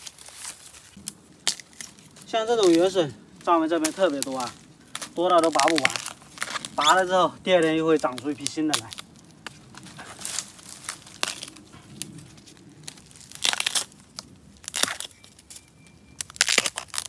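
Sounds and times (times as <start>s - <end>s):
bamboo shoots snapping: 0.0s - 17.0s
dry leaves rustling: 0.0s - 17.0s.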